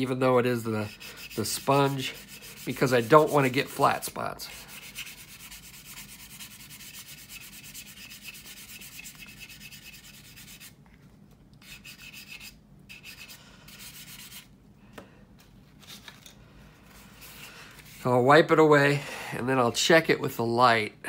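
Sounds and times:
sanding sponge scratching plastic: 0.6s - 4.0s, 4.6s - 10.8s, 11.6s - 14.5s.

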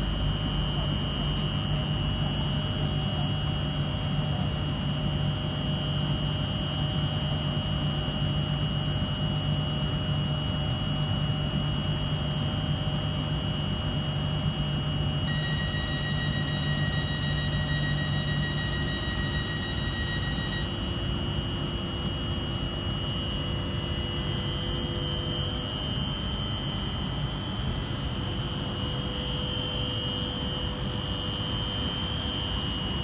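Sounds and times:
train electrical hum: 0.0s - 8.7s, 11.1s - 33.0s
high-pitched whines: 15.2s - 21.1s
high tone: 15.3s - 20.9s.

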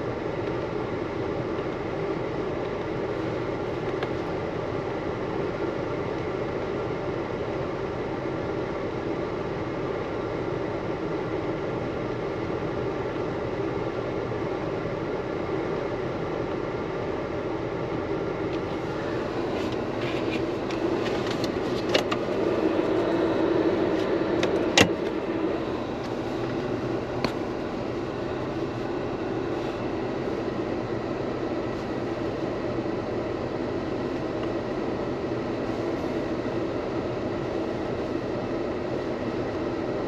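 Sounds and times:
car engine idling cabin hum: 0.0s - 40.0s
hand tapping dashboard: 18.4s - 30.7s.

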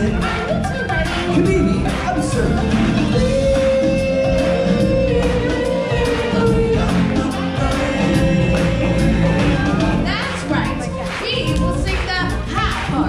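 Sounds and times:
backing music: 0.0s - 13.0s
choir singing: 3.2s - 11.2s.

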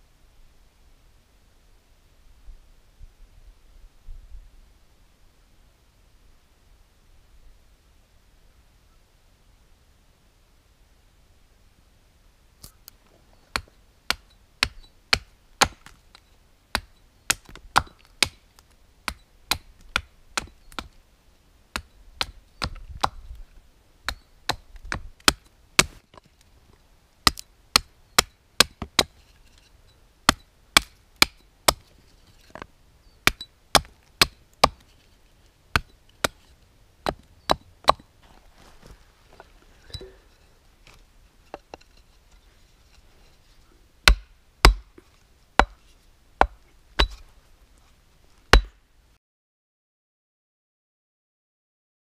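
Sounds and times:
hatchet chopping wood: 13.5s - 16.0s, 16.7s - 18.4s, 19.0s - 21.0s, 21.7s - 23.2s, 24.1s - 26.1s, 27.2s - 29.2s, 30.3s - 31.8s, 33.2s - 34.8s, 35.7s - 36.4s, 37.0s - 38.1s, 44.0s - 45.0s, 45.6s - 45.8s, 46.4s - 47.2s, 48.5s - 48.8s.

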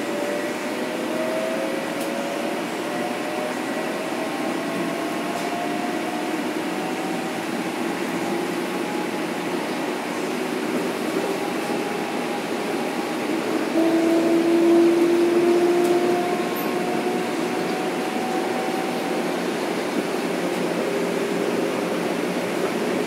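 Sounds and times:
train rolling noise: 0.0s - 23.0s.

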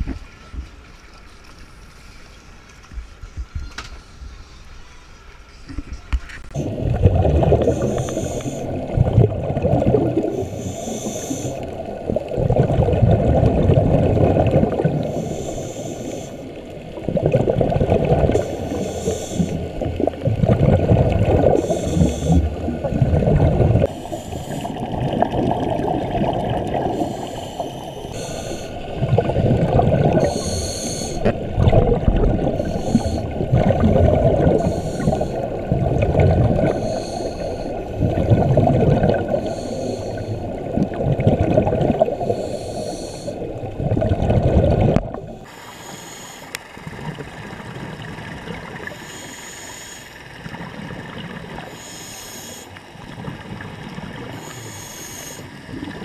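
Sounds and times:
gurgling exhaled bubbles underwater: 6.5s - 45.5s, 46.5s - 49.4s, 50.2s - 51.9s, 52.8s - 56.0s
hissing regulator inhalations: 7.6s - 8.8s, 10.2s - 11.8s, 14.9s - 16.7s, 18.3s - 19.9s, 21.4s - 22.7s, 23.8s - 25.0s, 26.8s - 29.0s, 30.1s - 31.4s, 32.4s - 33.5s, 34.4s - 35.7s, 36.5s - 38.0s, 39.2s - 40.6s, 42.1s - 43.5s, 45.4s - 46.8s, 48.8s - 50.4s, 51.6s - 52.9s, 54.3s - 55.7s.

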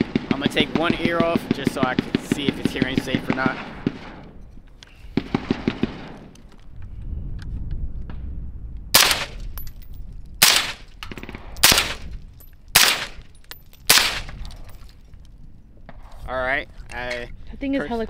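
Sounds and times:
suppressed rifle shots: 9.0s - 9.4s, 10.4s - 12.1s, 12.7s - 13.2s, 13.9s - 14.4s.

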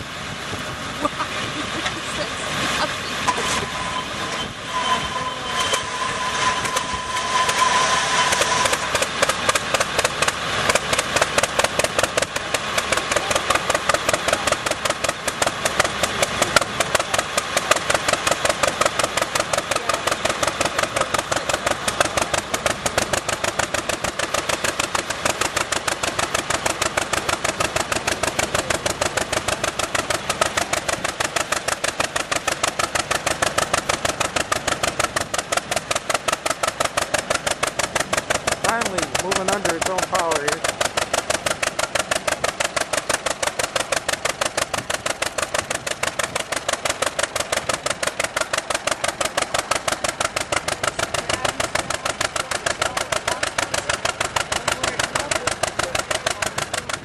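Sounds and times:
tractor engine starting and running: 0.0s - 57.0s.

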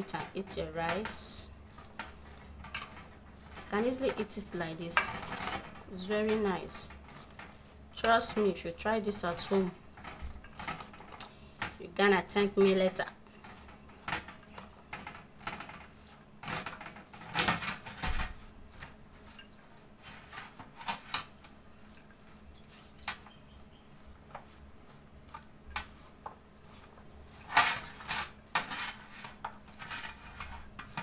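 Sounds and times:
utensil scraping metal bowl: 0.0s - 11.2s, 18.7s - 31.0s.

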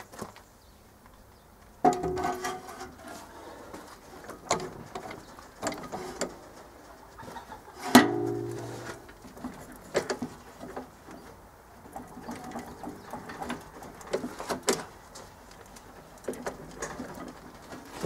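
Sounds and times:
steel parts clanking and scraping: 1.8s - 3.5s, 4.4s - 6.6s, 7.8s - 9.1s
ringing metal strike: 8.0s - 8.9s.

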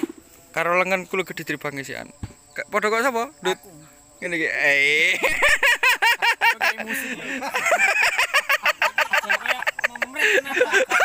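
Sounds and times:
men laughing: 4.9s - 11.0s.

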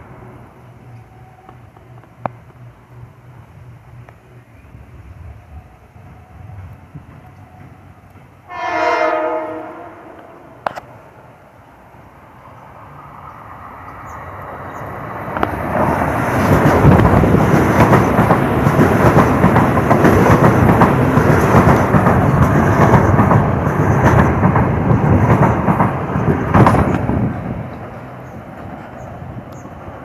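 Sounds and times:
train wheels rumbling on rail: 0.0s - 30.0s
clacking over rail joints: 15.3s - 29.7s.

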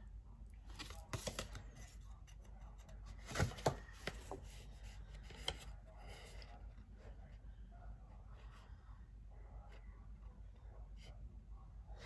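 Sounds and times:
paper card rustling and tapping: 0.7s - 5.7s.

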